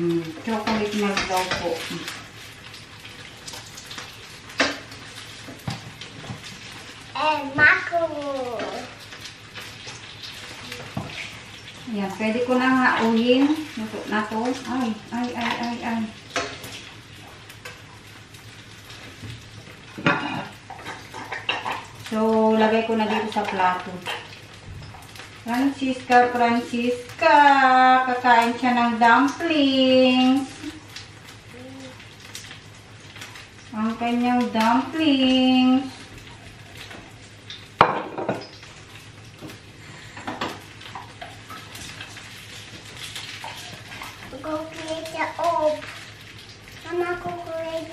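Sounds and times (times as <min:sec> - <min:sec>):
dumplings sizzling in oil: 0:00.0 - 0:47.9
dishes clattering: 0:37.8 - 0:38.5.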